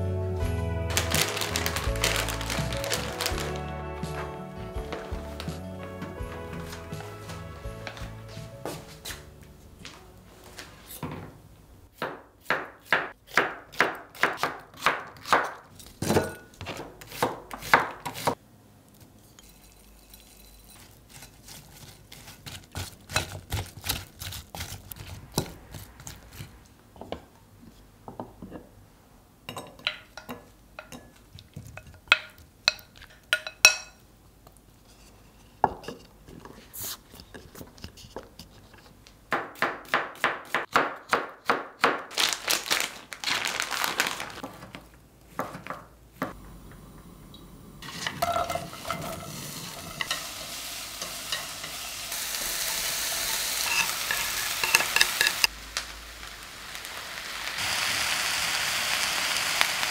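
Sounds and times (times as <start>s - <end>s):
onions sizzling in pan: 0.9s - 3.6s, 47.8s - 59.9s
knife chopping on wooden board: 12.0s - 18.4s
spoon scraping glass bowl: 19.2s - 22.5s, 53.6s - 55.5s.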